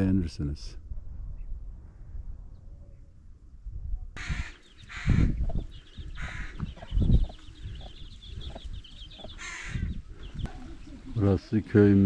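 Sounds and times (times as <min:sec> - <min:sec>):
wind buffeting microphone: 0:00.8 - 0:11.2
crows cawing: 0:04.2 - 0:05.4, 0:06.0 - 0:06.8, 0:09.3 - 0:10.3.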